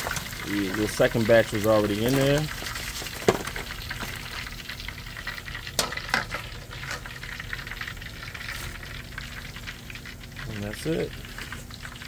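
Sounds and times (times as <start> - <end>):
chicken wings deep-frying in oil: 0.0 - 12.0
metal tongs clicking on foil pan: 5.8 - 7.1.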